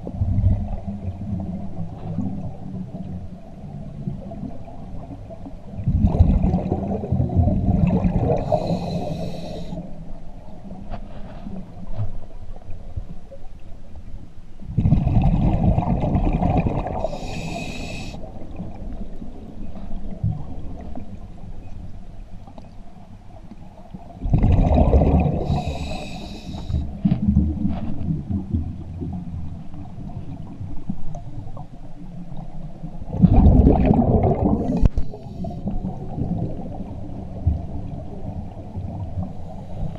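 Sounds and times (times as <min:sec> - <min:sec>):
exhaled bubbles rushing: 0:05.8 - 0:09.2, 0:14.8 - 0:17.5, 0:24.2 - 0:25.9, 0:33.0 - 0:39.3
regulator hiss: 0:08.5 - 0:09.8, 0:17.0 - 0:18.2, 0:25.5 - 0:26.9.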